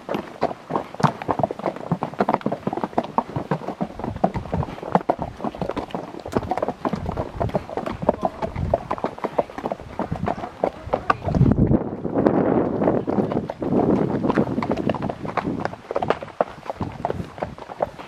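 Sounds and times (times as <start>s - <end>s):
horse hooves on dirt trail: 0.0s - 18.0s.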